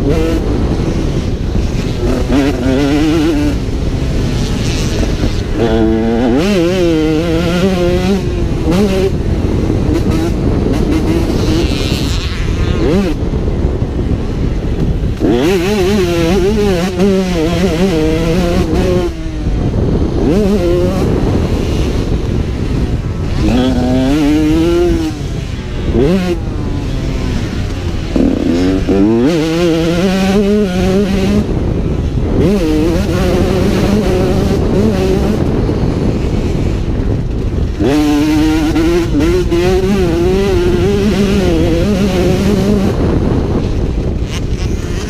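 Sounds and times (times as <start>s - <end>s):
two-stroke motocross engine revving: 0.0s - 45.0s.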